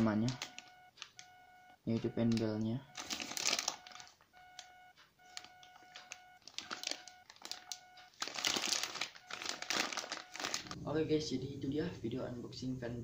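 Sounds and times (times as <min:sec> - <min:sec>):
plastic bag crinkling: 0:00.0 - 0:01.3, 0:02.3 - 0:04.2, 0:05.3 - 0:10.8.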